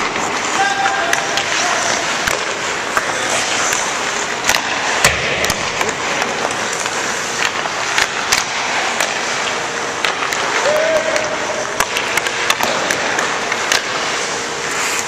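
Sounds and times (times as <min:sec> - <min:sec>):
skates hissing on ice: 0:00.0 - 0:05.0, 0:05.6 - 0:09.8, 0:12.4 - 0:15.0
pucks and sticks knocking: 0:00.0 - 0:15.0.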